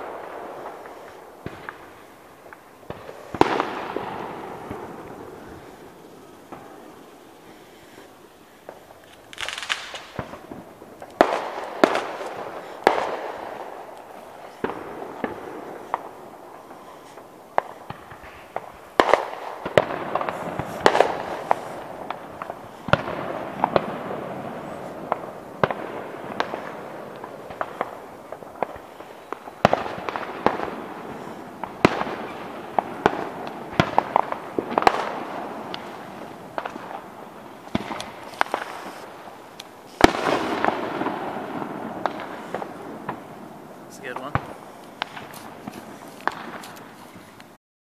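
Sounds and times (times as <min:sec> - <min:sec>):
fireworks bangs: 0:00.0 - 0:47.6.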